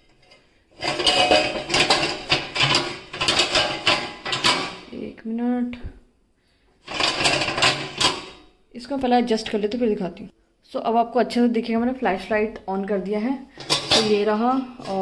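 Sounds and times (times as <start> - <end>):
wire racks sliding and rattling: 0.0 - 4.9, 6.8 - 8.4, 13.6 - 15.0
pots and pans clinking: 0.1 - 4.9, 6.9 - 8.5, 13.6 - 15.0.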